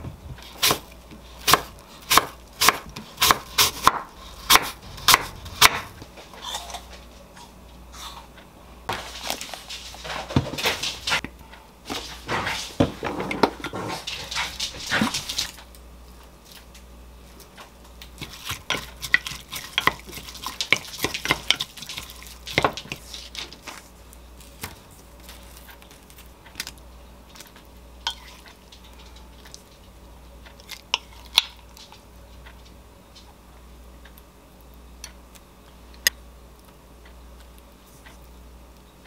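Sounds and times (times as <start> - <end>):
parchment paper crinkling: 21.7 - 27.6.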